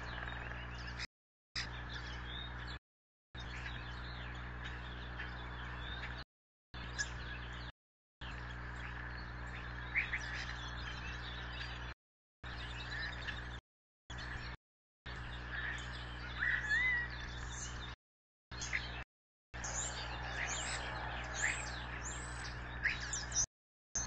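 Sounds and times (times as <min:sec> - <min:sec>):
bird chirps: 0:00.0 - 0:02.8, 0:03.4 - 0:06.2, 0:06.8 - 0:19.0, 0:19.6 - 0:24.0
rising bird call: 0:15.6 - 0:17.6.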